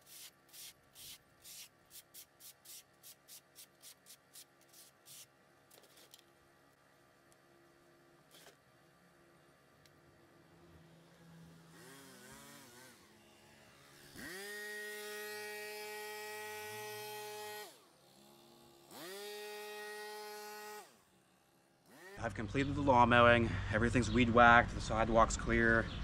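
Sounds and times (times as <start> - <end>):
handheld power tool motor revving: 0.0 - 5.3, 8.2 - 8.6, 10.5 - 22.4.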